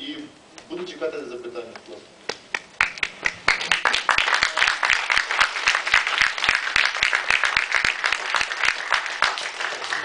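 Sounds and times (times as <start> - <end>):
audience applauding: 2.5 - 10.0.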